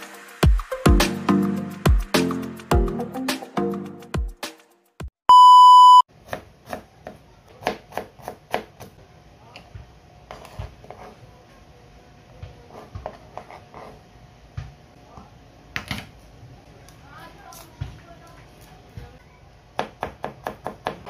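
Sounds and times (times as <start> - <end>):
electronic beep: 5.3 - 6.1
knife chopping on cutting board: 6.2 - 9.0, 19.8 - 21.0.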